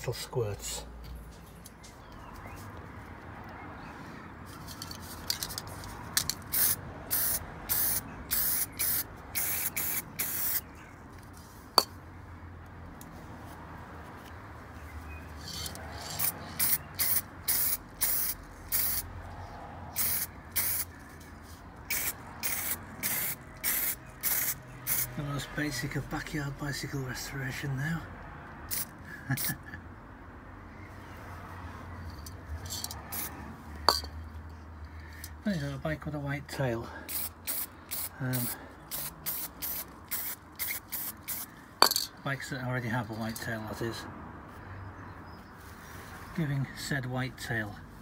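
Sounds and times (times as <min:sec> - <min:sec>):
spray paint can hissing: 0:04.8 - 0:10.7, 0:15.4 - 0:19.1, 0:19.9 - 0:20.9, 0:21.9 - 0:25.1, 0:28.7 - 0:29.6, 0:32.7 - 0:33.3, 0:37.1 - 0:42.0.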